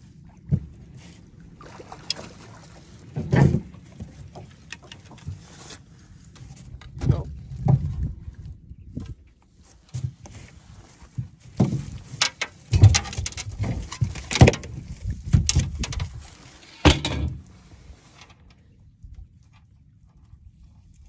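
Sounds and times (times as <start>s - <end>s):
knocks and clatter: 11.6s - 14.8s, 15.4s - 16.1s, 16.8s - 17.5s
loud thumps: 16.8s - 17.5s.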